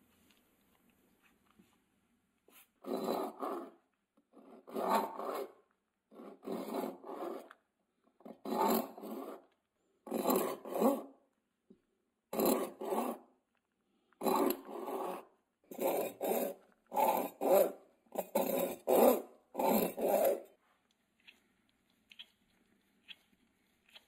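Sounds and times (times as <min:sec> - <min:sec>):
hacksaw cutting metal rod: 0:08.4 - 0:09.4, 0:10.1 - 0:11.1, 0:12.3 - 0:13.2, 0:14.2 - 0:20.5.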